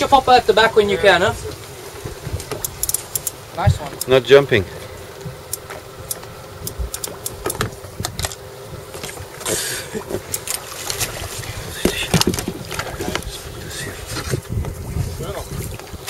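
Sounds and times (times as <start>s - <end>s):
faint steady hum: 0.0s - 16.0s
water against hull: 0.0s - 16.0s
knocks and clicks on boat: 2.0s - 4.2s, 5.2s - 9.5s, 11.8s - 13.5s.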